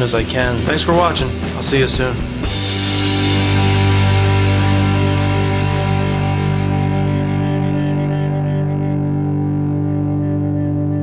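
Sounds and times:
distorted guitar chord ringing: 0:02.2 - 0:11.0.

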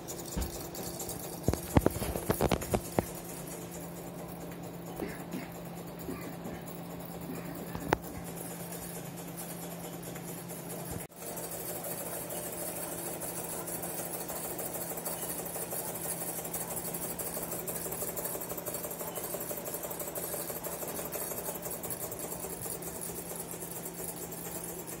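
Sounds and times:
steady low hum: 0:00.0 - 0:25.0
toy steam engine clattering: 0:00.0 - 0:25.0.

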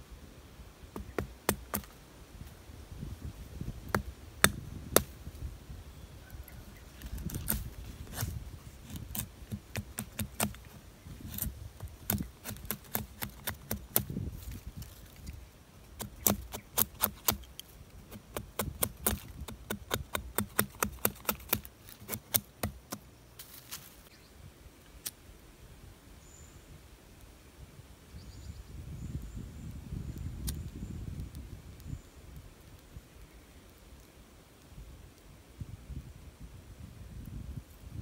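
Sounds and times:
machete scraping dry wood: 0:06.9 - 0:24.1.

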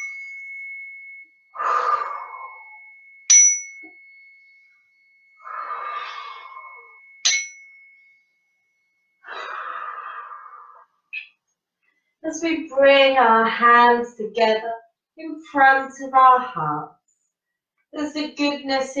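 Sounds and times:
metal chime ringing: 0:00.0 - 0:09.3
person breathing out deeply: 0:01.6 - 0:02.7, 0:05.4 - 0:07.0, 0:09.2 - 0:10.8.

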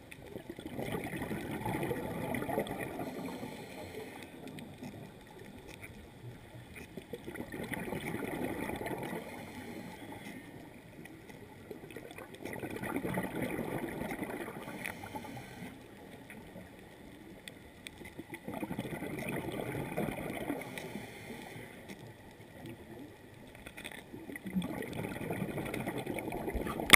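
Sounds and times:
underwater bubbles gurgling: 0:00.0 - 0:26.9
water hiss: 0:00.9 - 0:05.1, 0:08.0 - 0:10.7, 0:14.2 - 0:16.4, 0:20.1 - 0:22.0.

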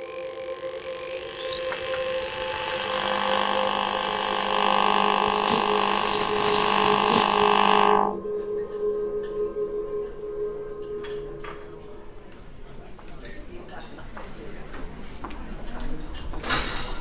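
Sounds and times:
ambient drone low tones: 0:00.0 - 0:13.0.

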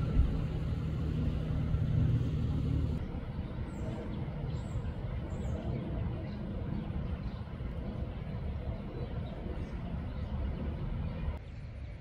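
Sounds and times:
vehicle engine passing: 0:00.0 - 0:03.0.

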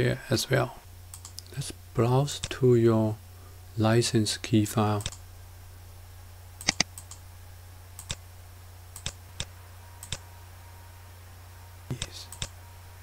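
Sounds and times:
low hum: 0:00.0 - 0:13.0
mouse buttons clicking: 0:06.6 - 0:07.2.

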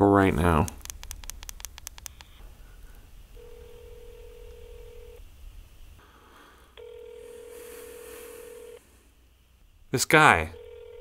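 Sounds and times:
phone ringback tone: 0:03.4 - 0:05.2, 0:06.8 - 0:08.8, 0:10.6 - 0:11.0.

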